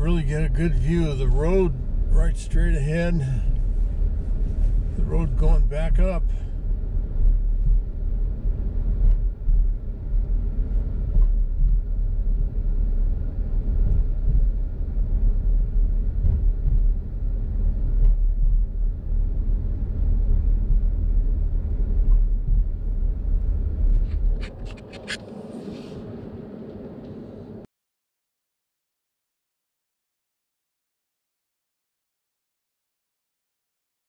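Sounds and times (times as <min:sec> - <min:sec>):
car engine and tyre rumble: 0:00.0 - 0:27.7.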